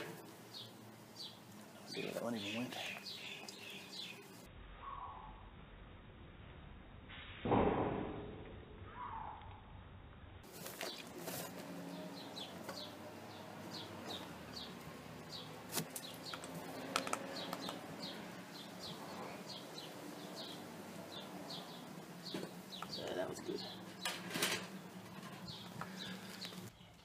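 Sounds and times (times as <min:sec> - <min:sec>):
small bird chirping: 0:00.5 - 0:05.4, 0:11.9 - 0:24.1.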